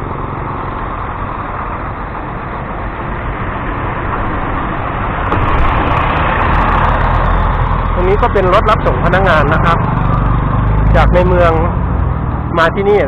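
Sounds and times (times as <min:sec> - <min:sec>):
bus passing by: 0:00.0 - 0:13.0.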